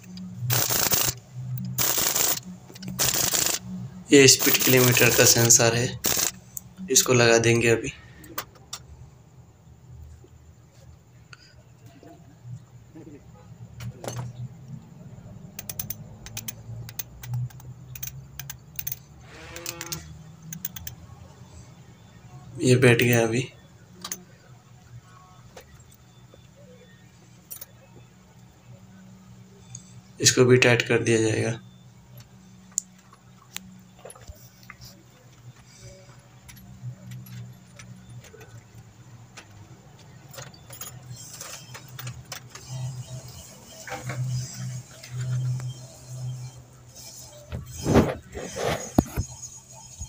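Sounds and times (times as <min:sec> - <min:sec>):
socket ratchet clicking: 0:00.0 - 0:03.6, 0:06.0 - 0:06.7, 0:15.6 - 0:19.0, 0:19.6 - 0:21.0.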